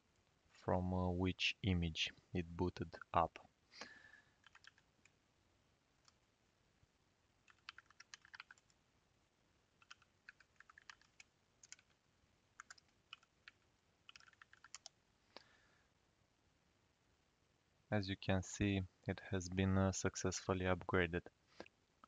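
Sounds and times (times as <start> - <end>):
faint keyboard typing: 4.4 - 5.2, 5.9 - 6.3, 7.4 - 8.8, 9.8 - 15.5.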